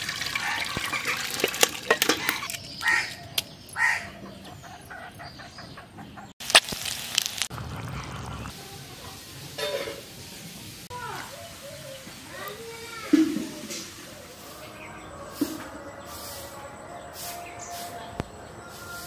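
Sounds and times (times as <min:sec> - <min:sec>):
water pouring into metal colander: 0:00.0 - 0:02.6
eggshell cracking: 0:06.4 - 0:08.5
low rumbling noise: 0:07.4 - 0:09.0.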